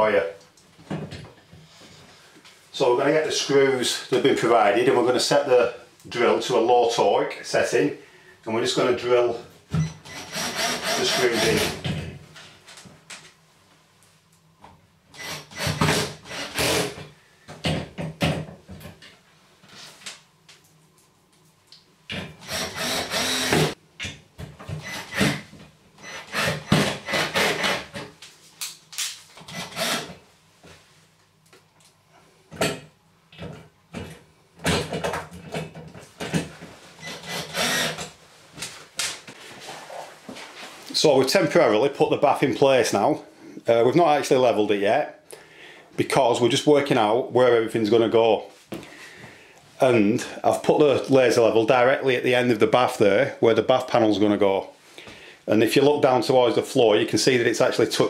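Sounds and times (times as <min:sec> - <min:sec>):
cordless drill driving screws: 0:10.0 - 0:11.8, 0:15.2 - 0:17.0, 0:22.4 - 0:23.8, 0:24.8 - 0:25.4, 0:26.0 - 0:27.9, 0:29.5 - 0:30.2, 0:37.0 - 0:38.1.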